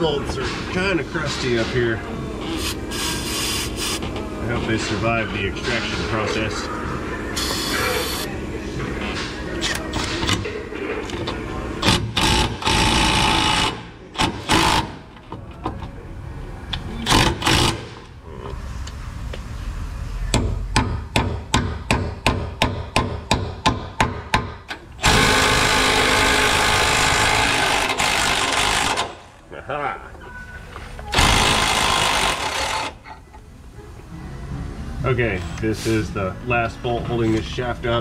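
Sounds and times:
impact wrench hammering: 11.8s - 15.1s, 17.0s - 18.1s, 20.3s - 29.2s, 31.1s - 33.0s.

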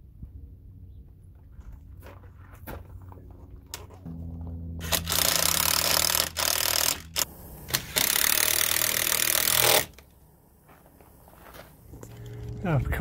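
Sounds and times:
power driver driving screws: 4.8s - 10.1s.

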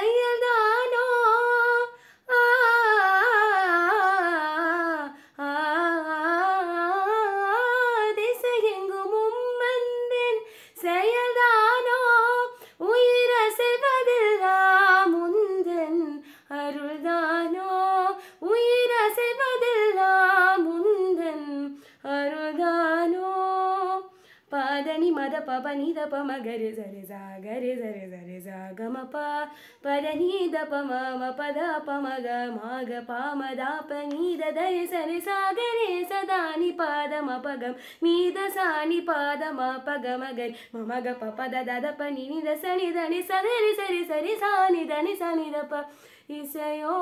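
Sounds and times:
woman singing unaccompanied: 0.0s - 47.0s
singer breathing: 1.9s - 2.3s, 10.4s - 10.8s, 16.2s - 16.5s, 24.1s - 24.5s, 29.5s - 29.8s, 37.7s - 38.0s, 40.5s - 40.8s, 45.8s - 46.3s.

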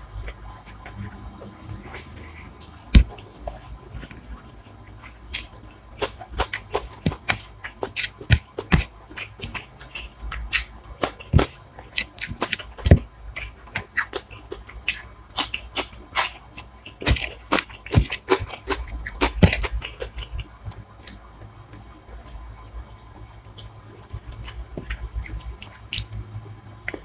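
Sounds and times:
wet chewing: 0.2s - 22.4s, 23.6s - 26.2s
lip smacks and mouth clicks: 5.3s - 12.7s, 23.6s - 26.2s.

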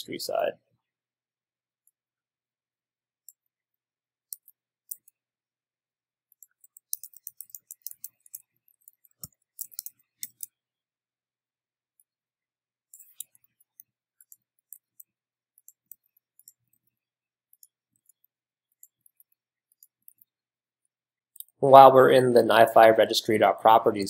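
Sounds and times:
keyboard and mouse clicking: 6.4s - 10.5s, 12.9s - 16.9s.

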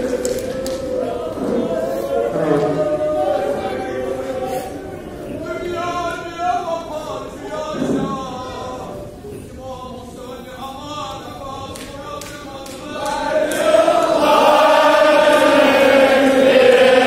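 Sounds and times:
men chanting together: 12.6s - 17.0s.

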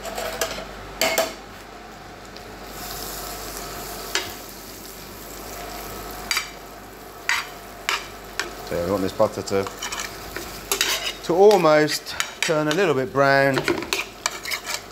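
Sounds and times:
butter sizzling in a frying pan: 2.6s - 12.8s
metal spoon scraping a pan: 7.3s - 8.5s, 9.6s - 14.9s.

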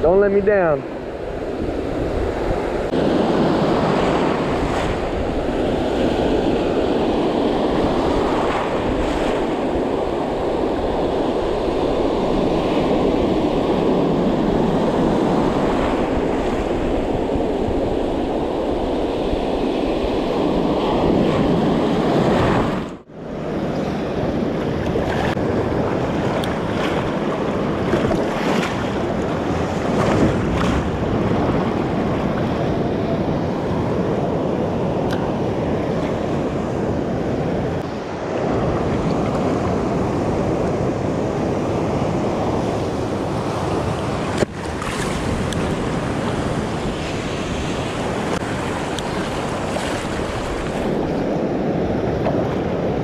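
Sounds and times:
wind buffeting microphone: 0.0s - 53.0s
ocean surf breaking around legs: 1.3s - 53.0s.

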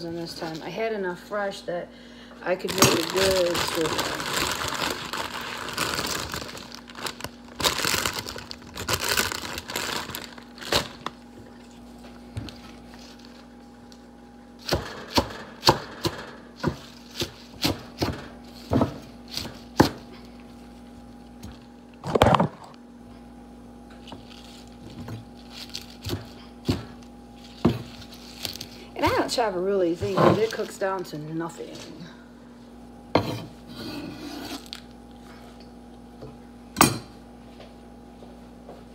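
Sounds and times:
faint steady hum: 0.0s - 38.9s
leaves rustling: 24.1s - 26.2s
knife chopping on wooden board: 26.0s - 27.0s.

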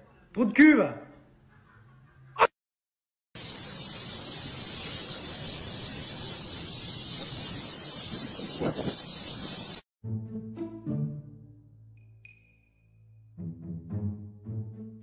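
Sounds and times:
chicks peeping: 3.4s - 9.8s.

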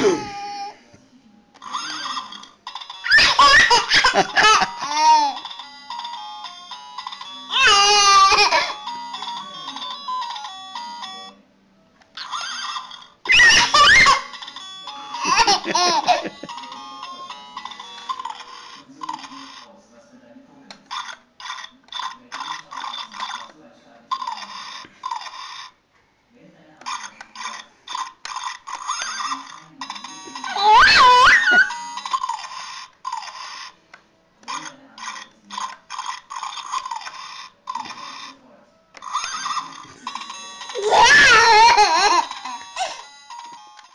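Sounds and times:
toddler laughing and squealing: 13.3s - 14.2s, 30.5s - 31.7s, 40.8s - 42.3s.

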